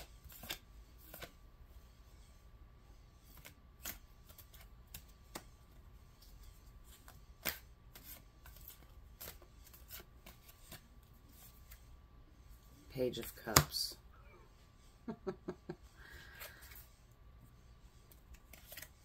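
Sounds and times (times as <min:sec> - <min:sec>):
cards being shuffled: 0:00.0 - 0:01.4, 0:03.2 - 0:11.9, 0:18.0 - 0:19.0.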